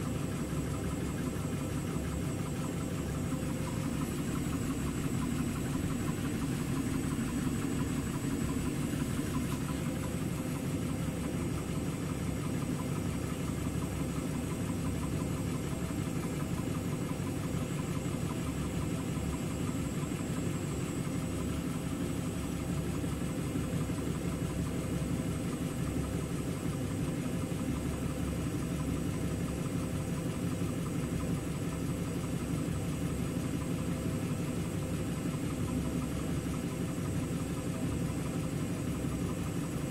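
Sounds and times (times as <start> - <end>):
washing machine humming: 0.0 - 39.9.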